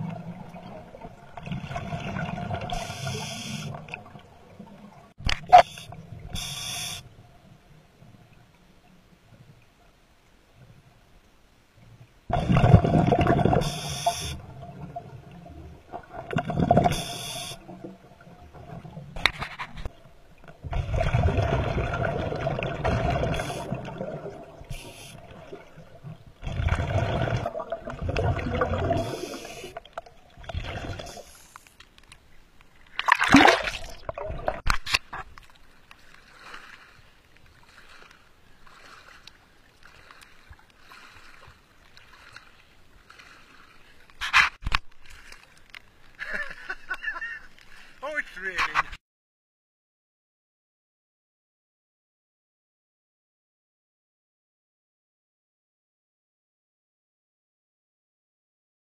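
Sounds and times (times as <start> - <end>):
underwater bubbles gurgling: 0.0 - 8.6, 12.3 - 19.2, 19.9 - 31.4, 33.0 - 34.7
small waves lapping: 17.0 - 48.7
sharp splash: 33.0 - 34.2.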